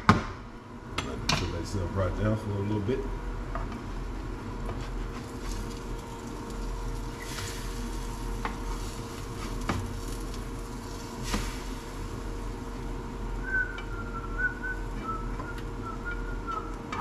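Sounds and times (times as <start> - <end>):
eggs sizzling in a pan: 4.8 - 13.8.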